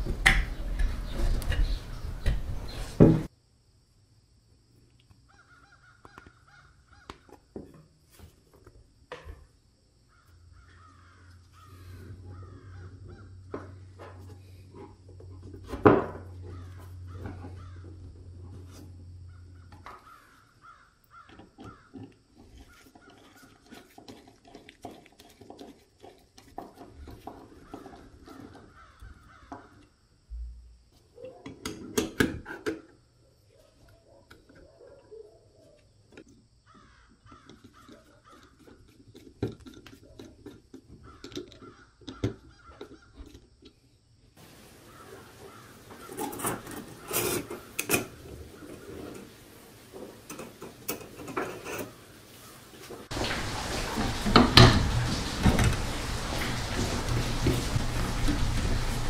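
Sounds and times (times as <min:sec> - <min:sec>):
bird calling: 0:44.4 - 0:47.8.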